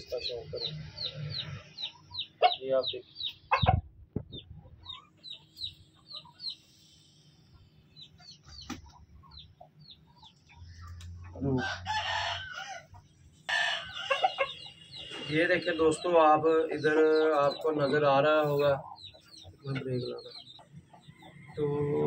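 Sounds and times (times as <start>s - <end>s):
rooster crowing: 11.5s - 12.9s.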